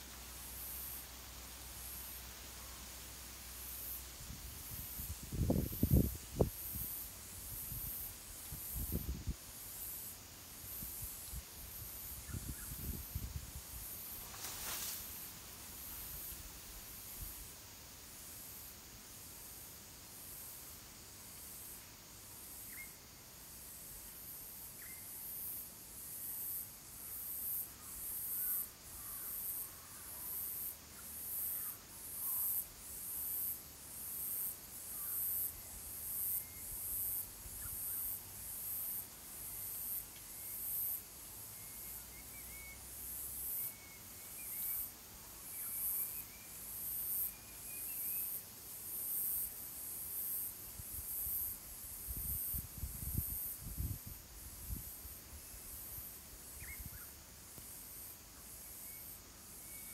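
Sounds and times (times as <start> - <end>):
cicadas calling: 10.7 - 13.3, 22.5 - 23.1, 26.4 - 59.9.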